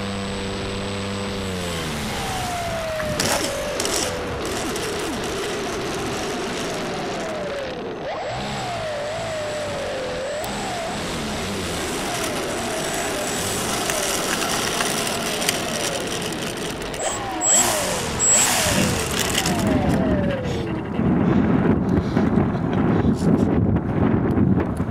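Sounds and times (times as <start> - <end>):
electric motor and propeller whining: 0.0 - 24.9
wind buffeting microphone: 17.0 - 24.9.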